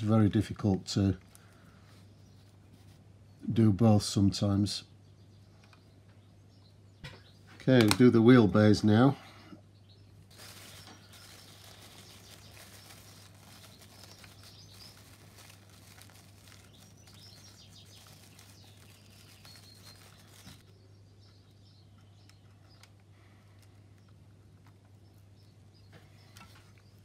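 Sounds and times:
cling film crinkling: 10.1s - 20.7s.

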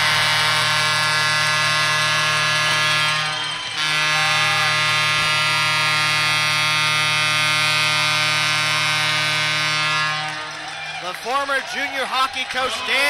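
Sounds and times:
arena goal horn blast: 0.0s - 10.7s.

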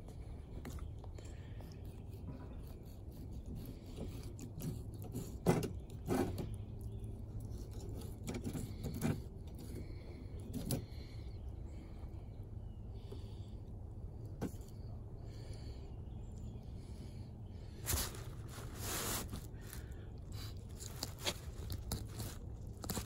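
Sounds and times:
knife cutting and scraping fish: 1.4s - 6.6s, 7.3s - 11.0s, 17.9s - 23.0s.

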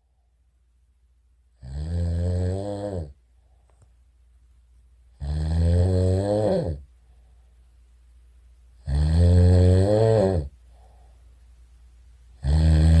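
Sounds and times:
loud snoring: 1.6s - 3.2s, 5.2s - 6.8s, 8.8s - 10.6s, 12.4s - 13.0s.

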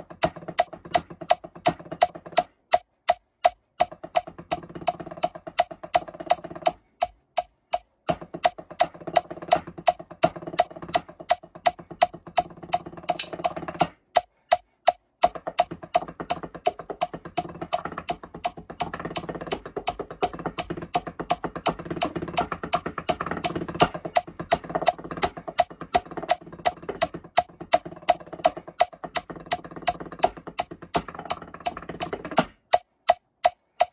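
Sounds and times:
mallets on practice pads: 0.0s - 33.9s
metronome clicking: 0.0s - 33.9s.

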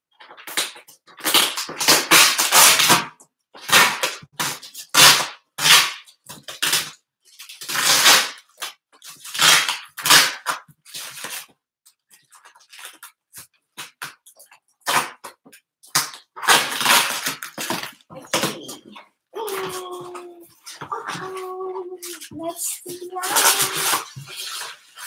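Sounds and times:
cardboard ripping and scraping: 0.4s - 11.5s, 14.8s - 18.7s, 19.4s - 25.0s.

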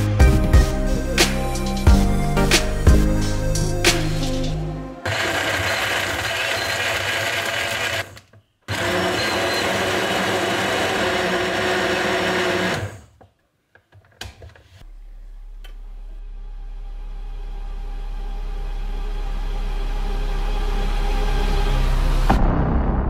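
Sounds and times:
blender crushing frozen fruit: 5.0s - 13.2s.

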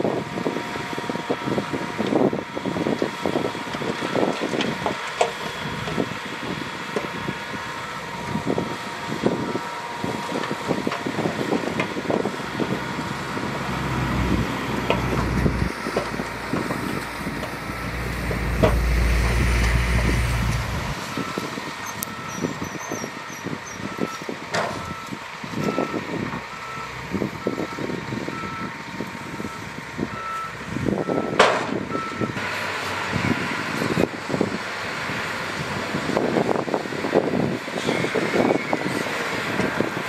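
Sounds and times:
diesel engine running: 0.0s - 40.0s
machinery clanks and knocks: 14.8s - 23.8s, 24.5s - 24.9s.

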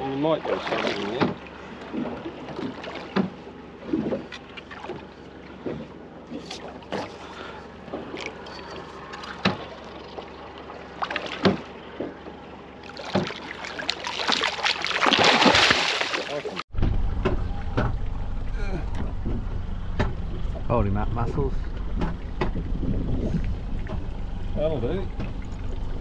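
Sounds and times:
knocks and clicks on boat: 0.6s - 10.3s, 10.9s - 13.6s, 16.7s - 26.0s
fish splashing at surface: 12.8s - 16.6s.

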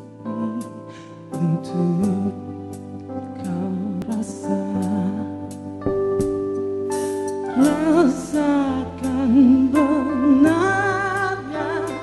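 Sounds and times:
band backing chords: 1.3s - 12.0s
vocalist singing with vibrato: 7.5s - 12.0s.

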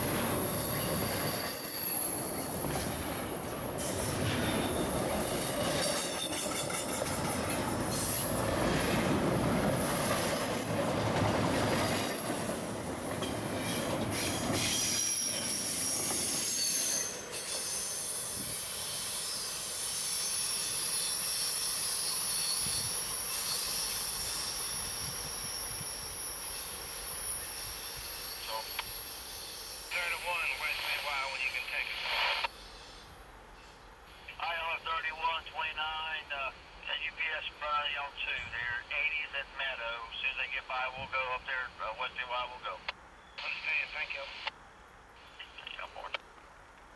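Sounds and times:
high-pitched wheel squeal: 0.4s - 2.5s, 3.8s - 6.5s, 13.6s - 29.8s
train wheels clattering over rail: 2.4s - 16.3s.

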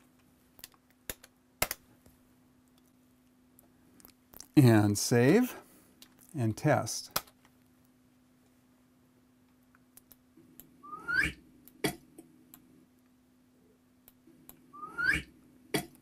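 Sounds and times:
whistle sliding upward in pitch: 10.8s - 11.4s, 14.8s - 15.3s.

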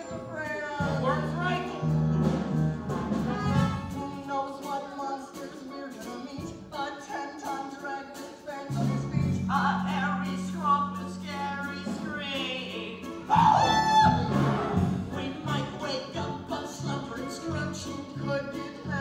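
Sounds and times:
instrumental accompaniment: 0.0s - 19.0s
voices singing: 0.0s - 19.0s
held low notes: 0.1s - 4.1s.

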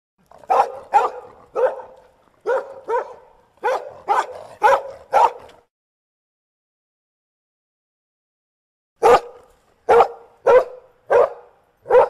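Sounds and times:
dog barking: 0.4s - 5.6s, 9.0s - 12.0s.

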